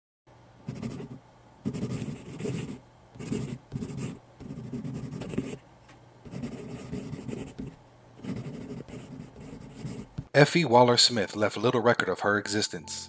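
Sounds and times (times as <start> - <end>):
pen scratching on paper: 0.7 - 5.6, 6.3 - 10.3.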